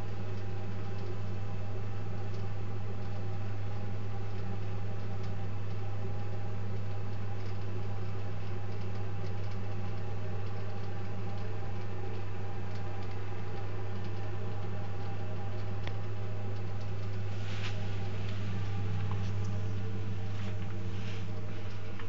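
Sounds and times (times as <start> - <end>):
gas boiler humming: 0.0 - 22.0.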